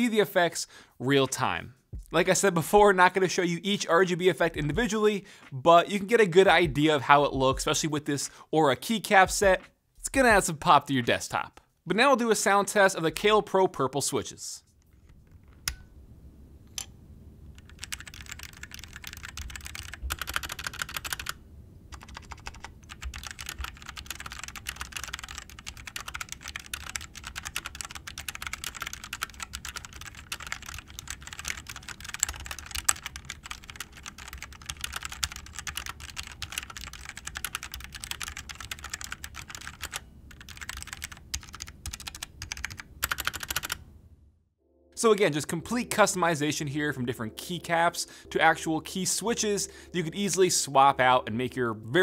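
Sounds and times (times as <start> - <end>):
mechanical keyboard typing: 17.5 - 43.8.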